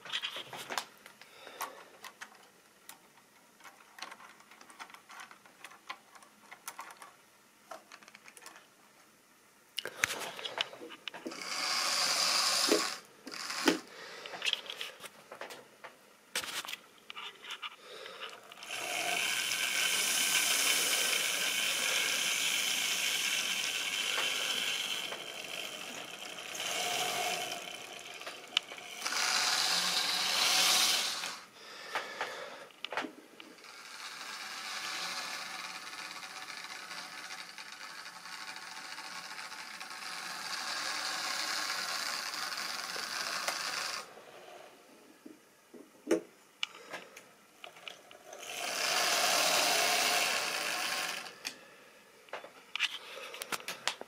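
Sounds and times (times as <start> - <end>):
model train motor whirring: 10.0 - 14.8, 17.6 - 31.5, 33.4 - 44.2, 47.7 - 51.6.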